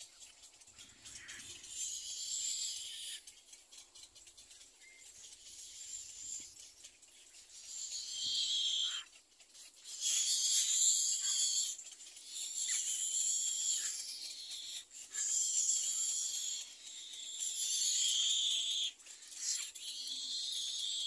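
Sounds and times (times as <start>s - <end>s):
nestlings giving raspy calls: 0.8s - 3.5s, 4.8s - 9.2s, 9.8s - 21.0s.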